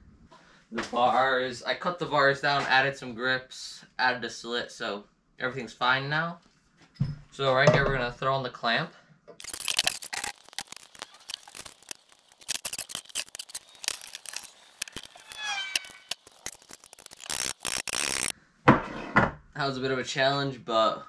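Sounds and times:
metal parts clicking and clinking: 9.4 - 18.3
metal scrape: 9.4 - 19.2
brief squeak: 15.0 - 16.1.

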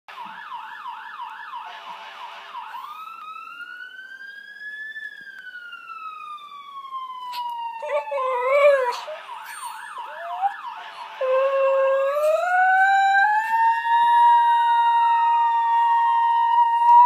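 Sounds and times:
police siren: 0.1 - 17.0
dog howling: 7.3 - 10.6.

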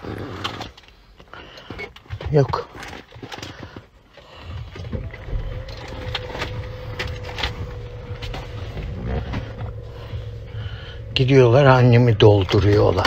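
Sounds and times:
car engine and road rumble: 4.8 - 13.0
steady hum: 5.0 - 13.0.

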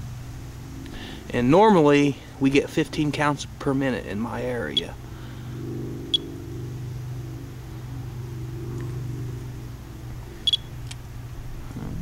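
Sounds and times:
steady low drone: 0.0 - 12.0
geiger counter chirping: 4.6 - 5.0, 6.0 - 6.6, 10.4 - 10.8.

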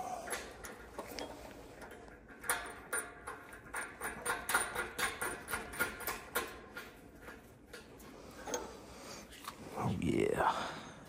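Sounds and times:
hand tool clicking on bolts: 0.2 - 8.7.

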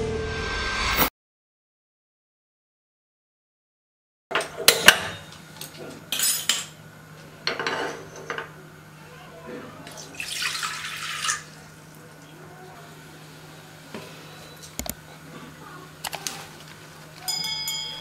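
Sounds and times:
metal cookware clattering: 4.3 - 6.8, 7.4 - 8.5
water pouring into a pot: 9.9 - 11.6.

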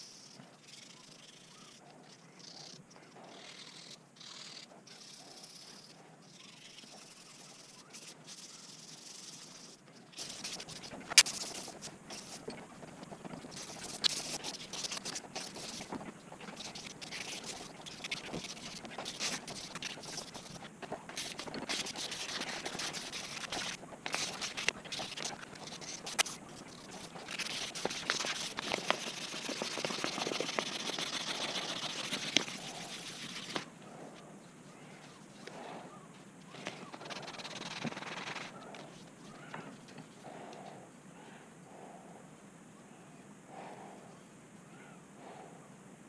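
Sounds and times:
sandpaper rasping on steel blade: 21.2 - 33.6.

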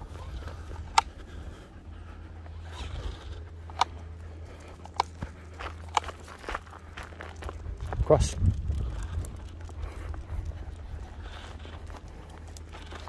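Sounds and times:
low rumble: 0.0 - 13.0
sharp clicks: 2.7 - 6.3
footsteps on grass and pavement: 3.4 - 13.0.

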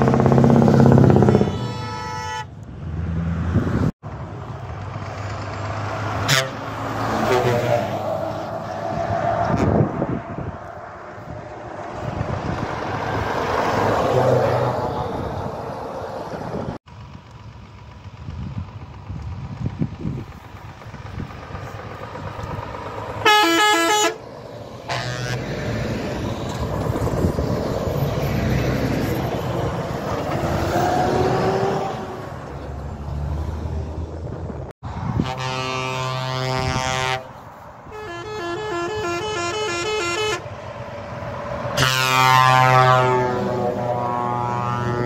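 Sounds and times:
truck air horns blasting: 0.0 - 2.6, 6.2 - 8.0, 9.4 - 10.0, 23.2 - 24.2, 24.8 - 25.6, 35.0 - 40.6, 41.7 - 45.0
diesel engines passing: 0.0 - 45.0.

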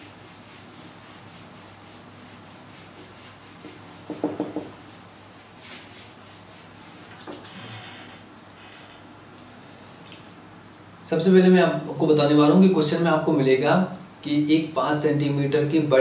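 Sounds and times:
eraser rubbing on whiteboard: 0.0 - 7.8.

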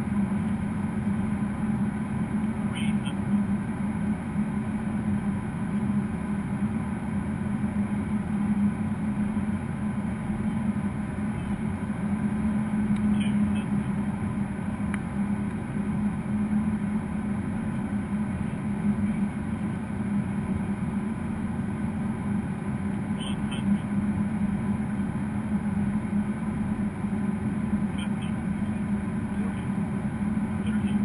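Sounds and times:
jet cockpit airflow and engine drone: 0.0 - 31.0.

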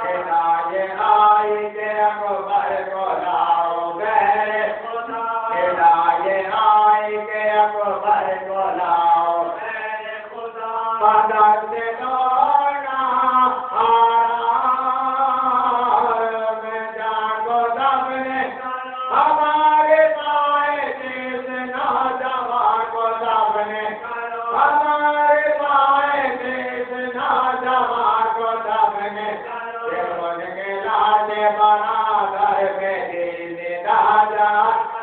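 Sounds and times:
person chanting: 0.0 - 35.0.

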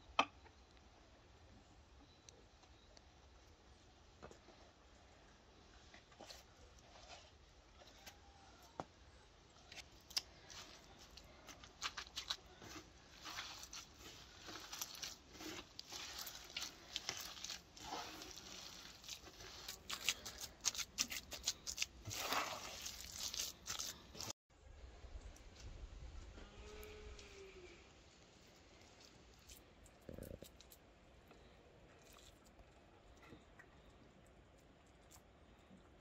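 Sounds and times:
hand squishing moist filling: 9.6 - 24.4, 28.4 - 30.8.

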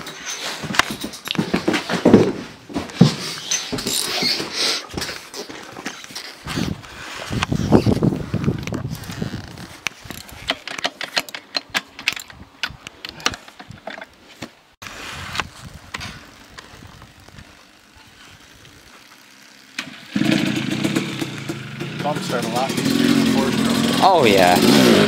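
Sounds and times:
sharp clicks and knocks: 9.8 - 14.6
two-stroke engine running: 15.8 - 25.0.

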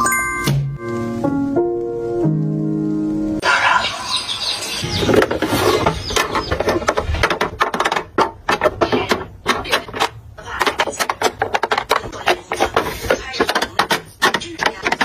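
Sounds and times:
plastic tubes clicking and clattering: 5.0 - 15.0.

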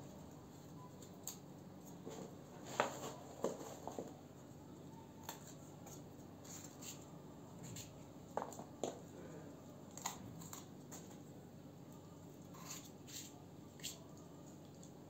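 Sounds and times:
knife snipping peppers: 9.9 - 11.2, 12.5 - 14.3.

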